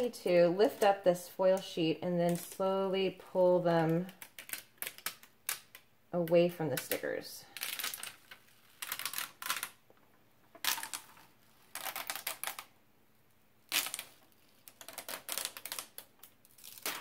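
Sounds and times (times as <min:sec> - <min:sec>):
foil crackling as peeled: 0:10.6 - 0:12.7, 0:13.7 - 0:17.0.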